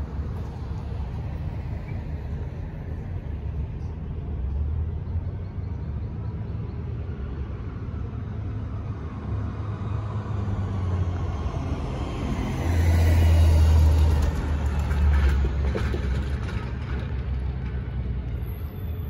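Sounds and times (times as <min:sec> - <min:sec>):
street traffic rumble: 0:00.0 - 0:19.0
delivery truck driving by: 0:10.4 - 0:19.0.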